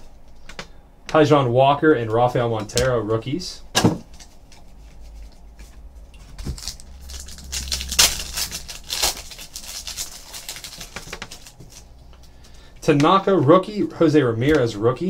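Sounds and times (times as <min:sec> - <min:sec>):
cards rustling: 0:04.1 - 0:13.2
foil pack crinkling and tearing: 0:06.2 - 0:12.6.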